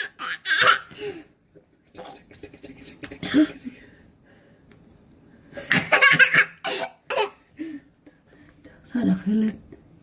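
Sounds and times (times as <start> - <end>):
small child laughing: 5.7 - 7.4.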